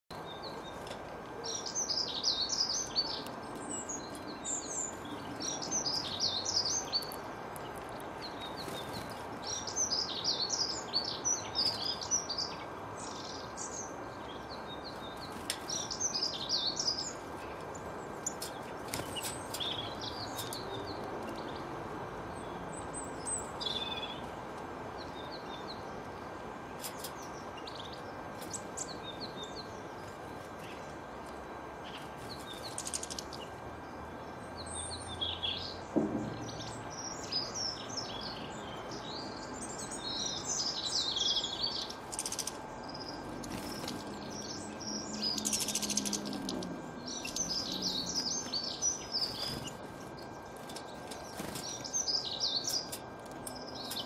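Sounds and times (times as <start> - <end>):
songbirds twittering: 0.1 - 54.0
steady background hiss: 0.1 - 54.0.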